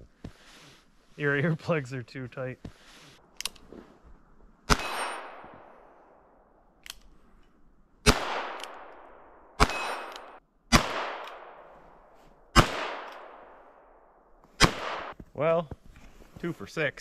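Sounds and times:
handgun shots with echo: 4.7 - 5.5, 9.6 - 11.6.

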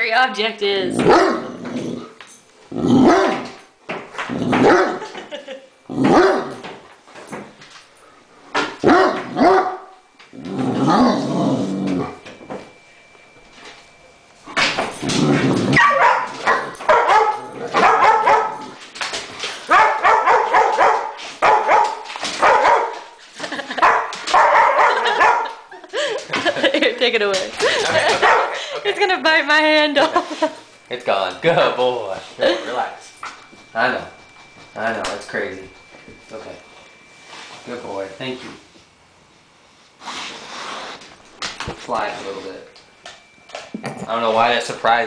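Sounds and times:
large dog barking: 1.0 - 1.6, 2.9 - 3.6, 4.5 - 5.1, 6.0 - 6.6, 8.8 - 10.0, 15.7 - 18.8, 19.7 - 23.0, 23.7 - 25.6, 28.1 - 28.6.

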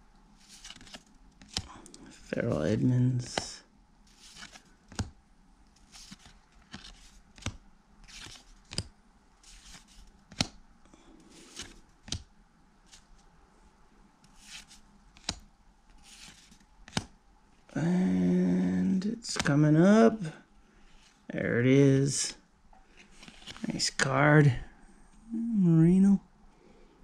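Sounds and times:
cards sliding swishes: 0.4 - 3.5, 4.1 - 5.1, 5.8 - 10.6, 11.2 - 12.2, 12.8 - 13.3, 14.2 - 17.1, 19.2 - 19.6, 22.9 - 23.8
card edge snapping: 9.7 - 10.6, 15.2 - 15.4, 16.9 - 17.1.

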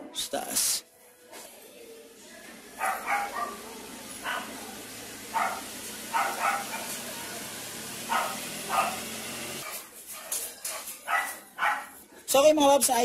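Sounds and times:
dog barking: 2.8 - 7.1, 8.0 - 12.0.

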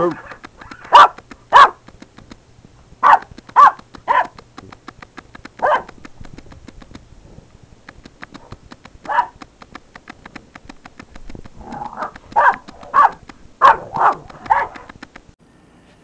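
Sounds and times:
puppy barking: 0.2 - 1.8, 3.0 - 4.4, 5.6 - 6.0, 8.4 - 9.4, 12.0 - 14.9.

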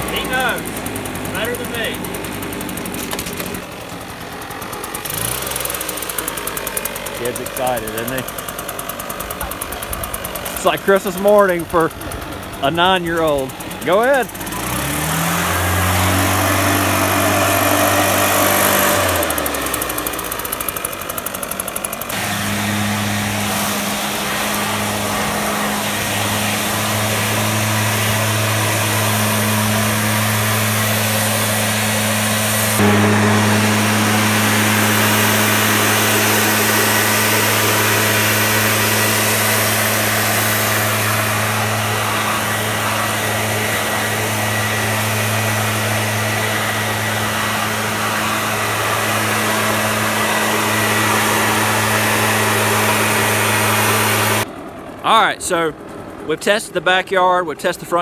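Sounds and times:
leaf blower engine running: 0.0 - 58.0.

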